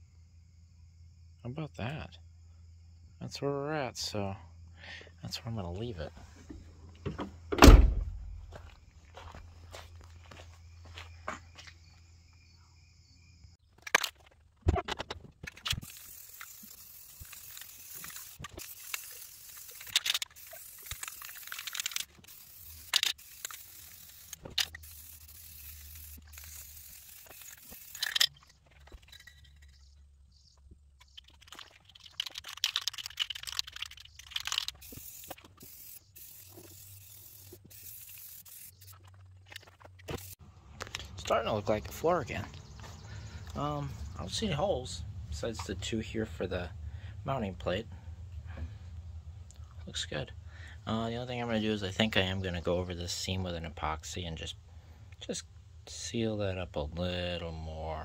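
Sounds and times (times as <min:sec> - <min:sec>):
spray can hissing: 0:15.8 - 0:28.1, 0:33.0 - 0:39.2, 0:40.0 - 0:40.4.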